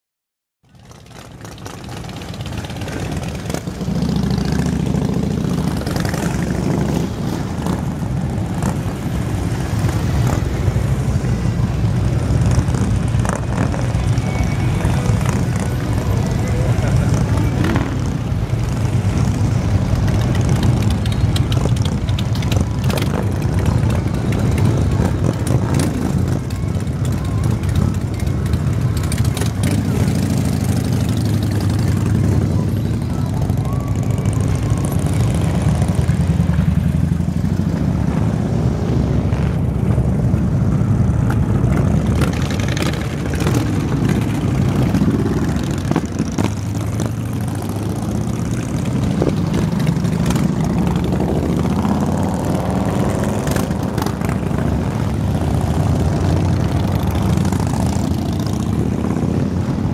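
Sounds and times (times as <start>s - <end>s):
motorcycles riding past: 0.7s - 59.9s.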